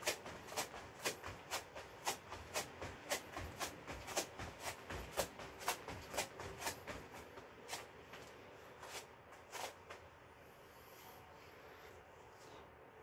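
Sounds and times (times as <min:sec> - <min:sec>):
footsteps on foam mat: 0:00.0 - 0:10.2.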